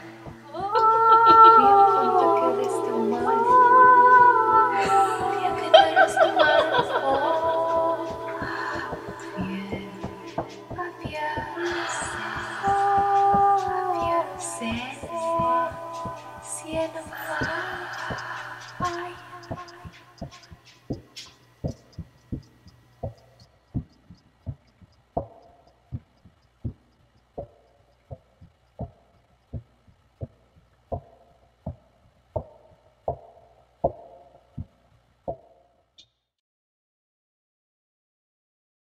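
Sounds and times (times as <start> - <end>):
faint fast ticking: 5.1 - 35.6
low thumps: 6.7 - 35.6.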